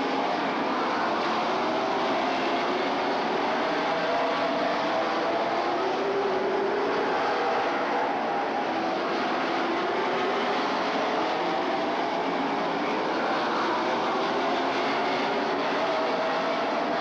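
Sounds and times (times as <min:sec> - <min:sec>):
racing car engines droning: 0:00.0 - 0:17.0.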